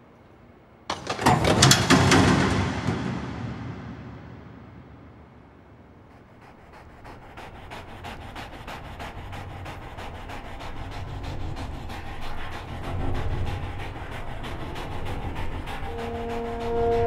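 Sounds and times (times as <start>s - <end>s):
low rumble: 1.2s - 6.8s
greyhounds galloping and panting: 6.1s - 17.0s.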